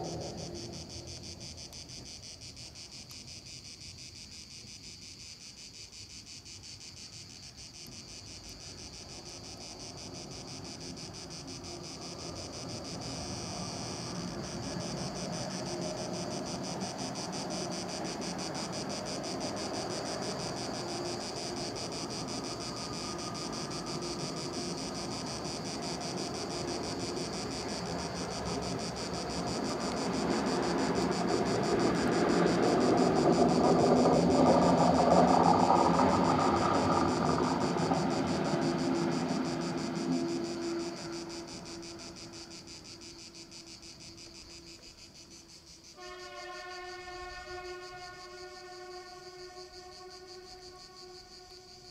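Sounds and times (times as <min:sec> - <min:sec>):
train rumble: 0:00.0 - 0:02.1, 0:08.4 - 0:44.7
crickets chirping: 0:00.0 - 0:51.9.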